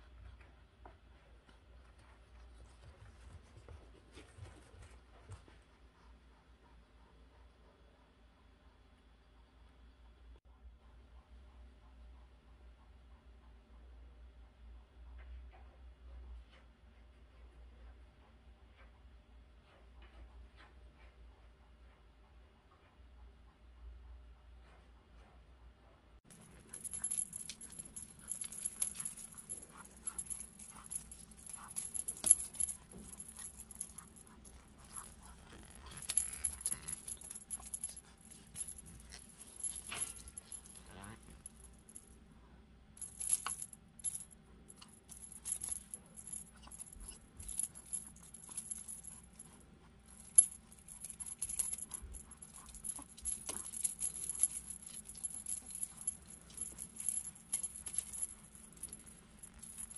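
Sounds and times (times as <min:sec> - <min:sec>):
small bell jingling: 0:26.3 - 0:42.1, 0:43.0 - 0:59.9.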